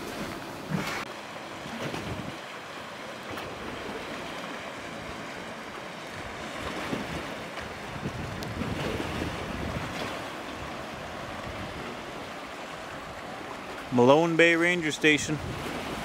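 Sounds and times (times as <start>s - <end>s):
waves washing against rocks: 0.0s - 16.0s
wind: 0.0s - 16.0s.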